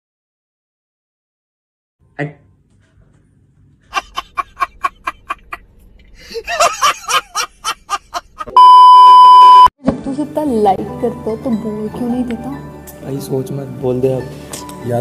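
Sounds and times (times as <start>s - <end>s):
man laughing hard: 3.9s - 5.6s, 6.2s - 8.6s
test-tone beep: 8.6s - 9.7s.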